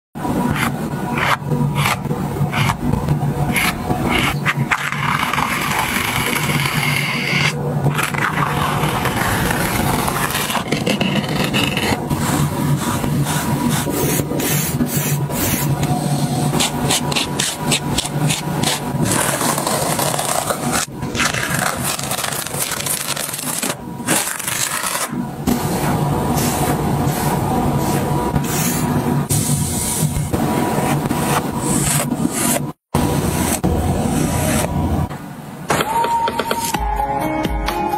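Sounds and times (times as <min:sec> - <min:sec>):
palette knife scraping paint on canvas: 0:03.5 - 0:15.8, 0:16.5 - 0:25.1, 0:31.0 - 0:34.8.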